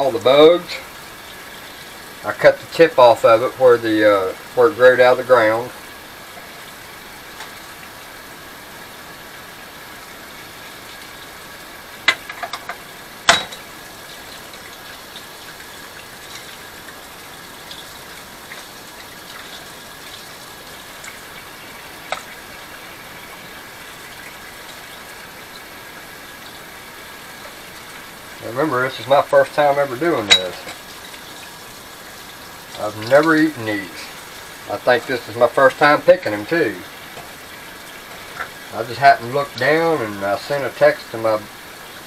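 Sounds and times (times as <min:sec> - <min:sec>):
steady hiss: 0:00.0 - 0:42.0.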